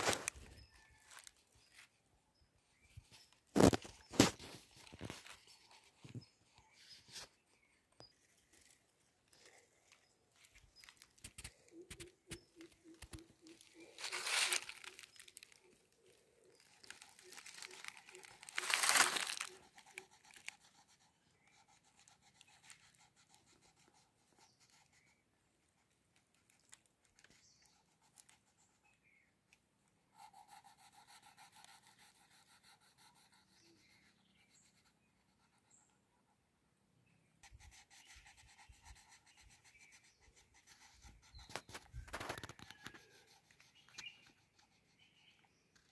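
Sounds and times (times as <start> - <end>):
paper rustles: 0.0 - 1.9, 8.5 - 20.6
crayon scratching on paper: 16.6 - 25.2, 30.1 - 36.0, 37.4 - 45.9.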